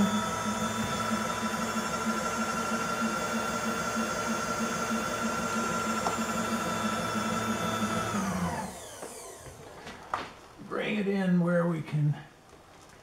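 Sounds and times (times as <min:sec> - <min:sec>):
small motor whining: 0:00.0 - 0:09.6.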